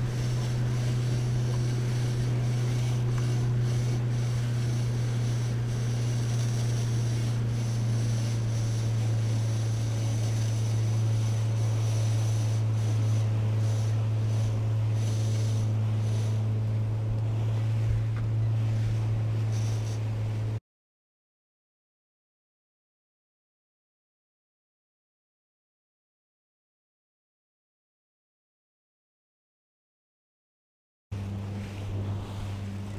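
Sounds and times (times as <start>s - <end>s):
outboard motor droning: 0.0s - 20.6s, 31.1s - 32.9s.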